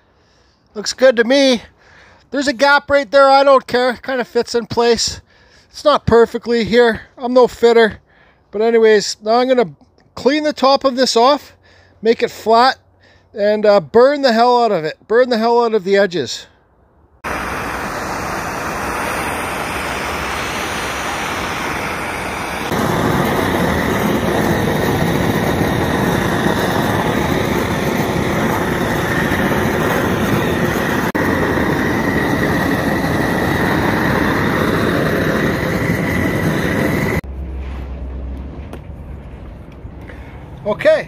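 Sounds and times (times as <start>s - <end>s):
gas torch burning: 17.2s - 37.3s.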